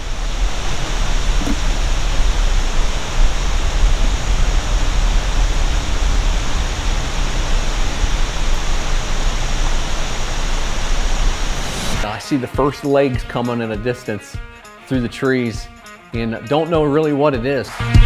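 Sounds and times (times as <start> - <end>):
deep rumble: 0.0 - 12.0
steady rushing noise: 0.0 - 12.1.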